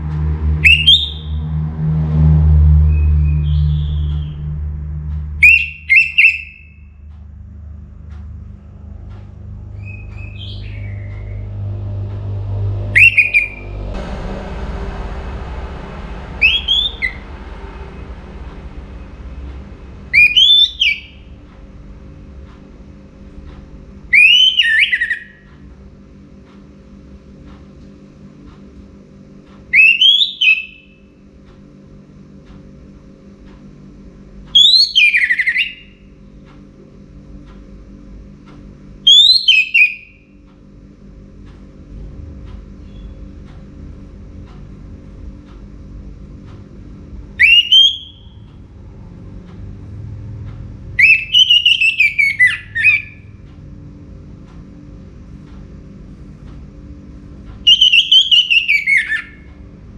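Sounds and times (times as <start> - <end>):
faint low hum: 0.0 - 59.9
thrush singing: 9.6 - 25.4.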